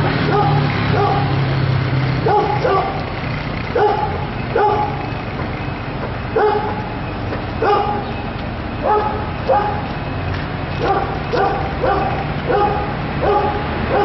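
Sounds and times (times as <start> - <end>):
dog barking: 0.2 - 1.4, 2.2 - 3.0, 3.7 - 5.0, 6.3 - 6.9, 7.6 - 8.1, 8.8 - 9.9, 10.8 - 14.0.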